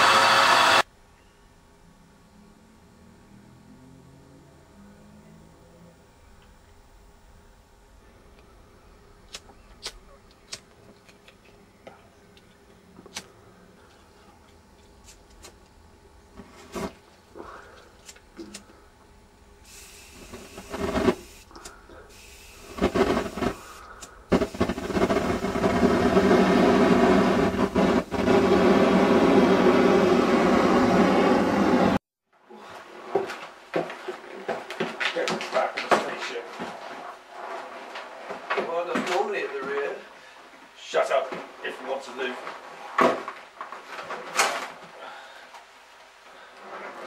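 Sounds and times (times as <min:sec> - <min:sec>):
gas flame jet rushing: 0:00.0 - 0:00.9, 0:16.2 - 0:18.8, 0:19.6 - 0:32.0.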